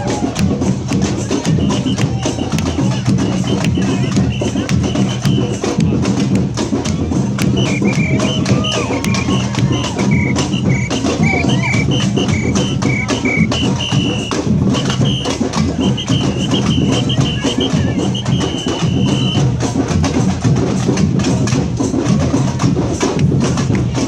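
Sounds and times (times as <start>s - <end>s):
percussion band drumming: 0.0s - 24.0s
high whistle blasts: 1.5s - 5.6s, 7.4s - 19.5s.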